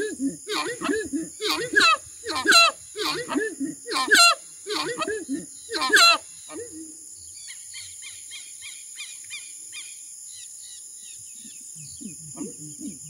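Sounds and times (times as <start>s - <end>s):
bird honking call: 0.0s - 6.6s
high insect hiss: 0.0s - 13.0s.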